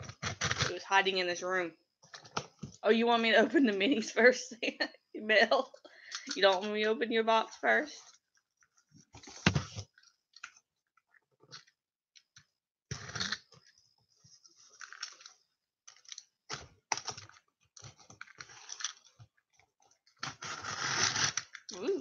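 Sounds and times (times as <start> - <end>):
box cutter cutting cardboard: 20.3 - 21.5.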